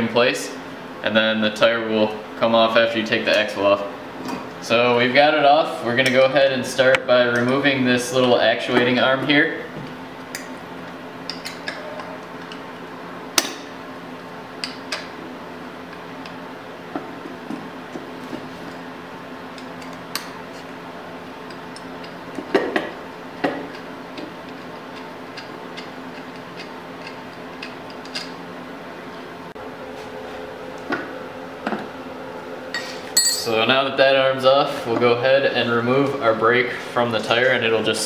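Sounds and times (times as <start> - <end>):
metal clanks: 32.8 - 33.6.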